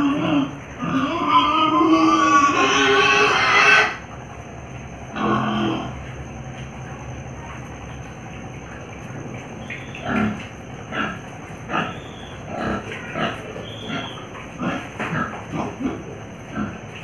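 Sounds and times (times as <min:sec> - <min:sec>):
pigs grunting and squealing: 0:00.0 - 0:04.1, 0:05.0 - 0:06.1, 0:09.6 - 0:17.0.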